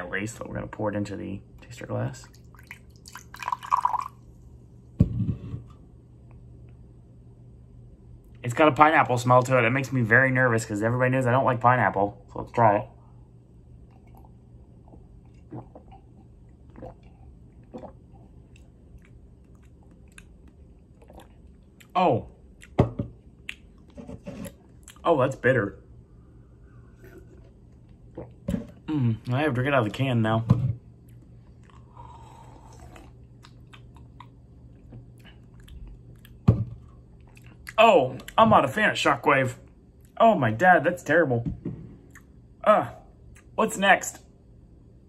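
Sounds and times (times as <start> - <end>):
low steady hum: 0.0 - 45.0
person sipping a drink: 13.9 - 21.9, 26.7 - 29.2, 31.6 - 36.3.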